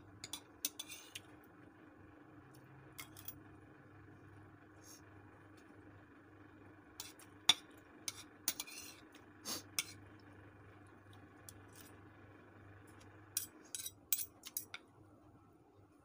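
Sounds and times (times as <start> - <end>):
faint low hum: 0.0 - 16.0
cutlery clinking in a bowl: 0.2 - 1.2, 3.0 - 3.3, 7.0 - 9.0, 13.4 - 14.8.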